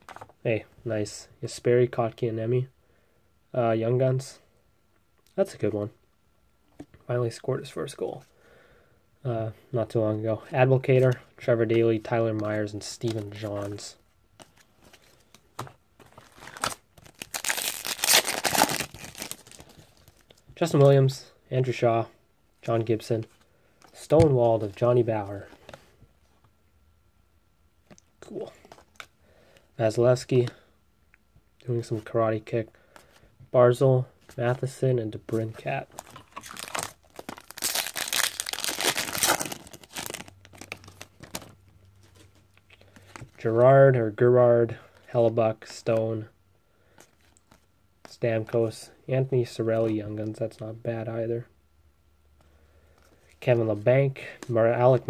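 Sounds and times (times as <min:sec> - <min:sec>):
wrapper tearing and crinkling: 0:16.2 - 0:20.2, 0:36.0 - 0:41.5.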